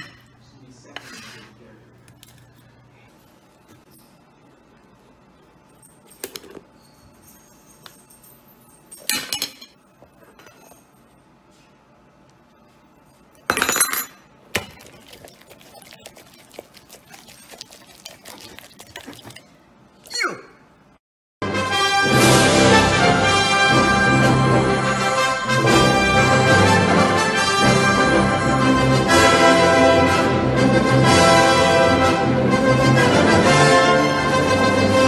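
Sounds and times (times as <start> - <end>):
fork scraping on plate: 0.9 - 1.6
cutlery clatters: 8.9 - 9.8, 13.5 - 14.7.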